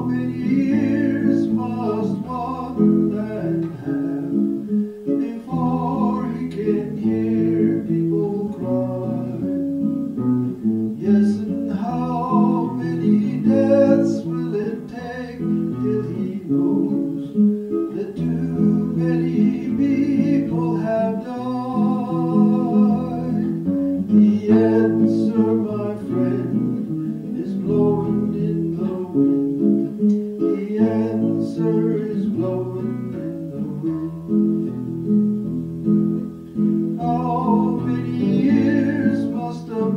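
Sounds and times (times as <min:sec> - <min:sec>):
person singing: 0:00.0 - 0:35.1, 0:36.5 - 0:39.9
strummed acoustic guitar: 0:00.0 - 0:39.9.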